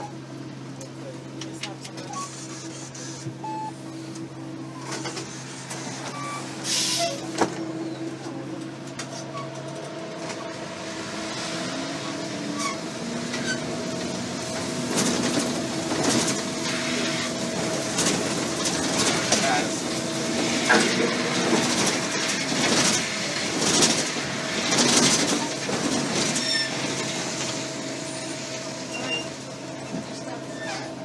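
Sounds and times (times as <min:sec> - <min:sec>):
bus engine running: 0:00.0 - 0:31.0
short air hiss: 0:06.6 - 0:07.0.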